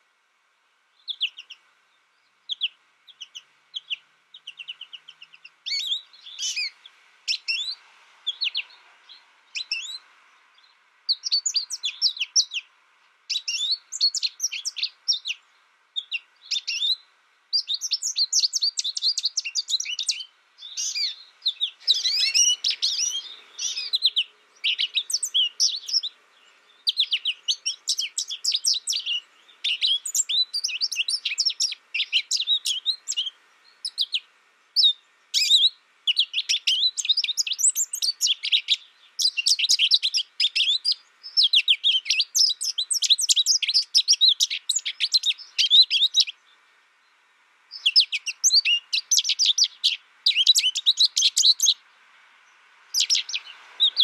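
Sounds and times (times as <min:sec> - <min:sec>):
goldfinch twittering: 0:17.6 - 0:34.2, 0:52.9 - 0:54.0.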